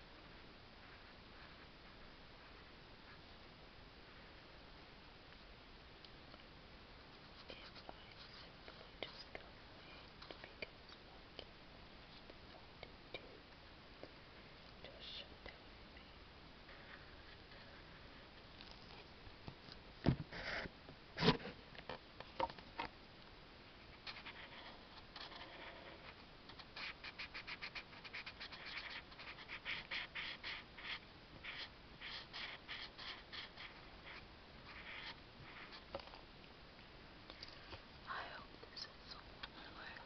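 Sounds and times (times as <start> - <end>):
marker drawing on paper: 24.0 - 36.0.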